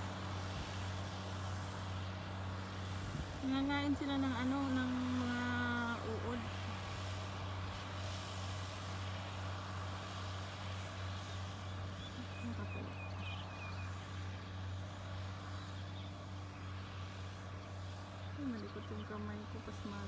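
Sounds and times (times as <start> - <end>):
tractor engine droning: 0.0 - 20.0
bird chirping: 11.6 - 14.0.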